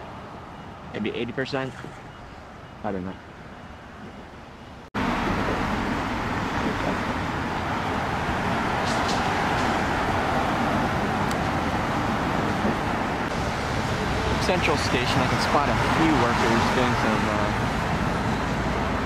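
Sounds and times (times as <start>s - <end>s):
road traffic: 0.0s - 19.0s.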